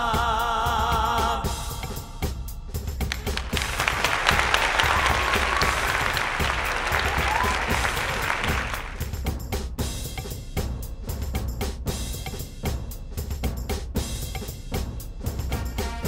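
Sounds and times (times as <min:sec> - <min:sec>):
audience applauding: 0:03.0 - 0:09.2.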